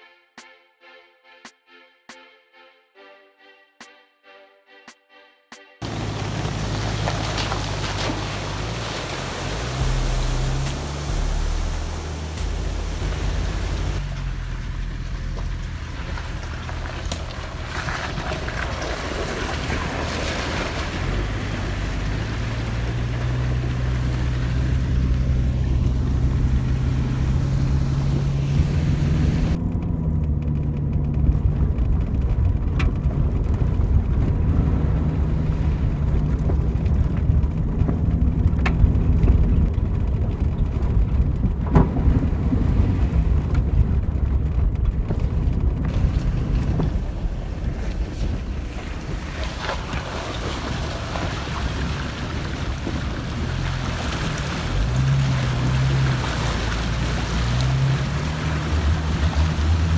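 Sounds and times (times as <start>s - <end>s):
water rushing and splashing: 5.8s - 29.6s, 45.9s - 59.9s
engine accelerating: 5.8s - 59.9s.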